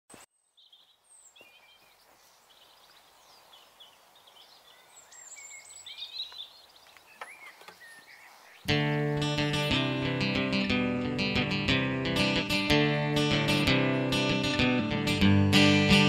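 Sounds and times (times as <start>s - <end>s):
small birds chirping: 0.1s - 11.4s.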